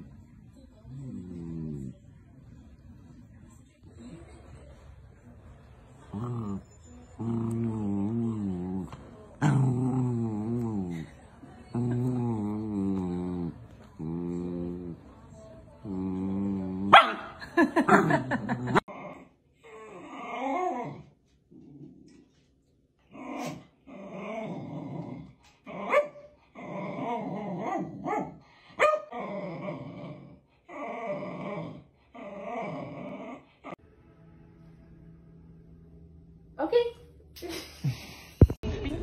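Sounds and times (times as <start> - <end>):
dog grumbling: 29.1 - 33.8.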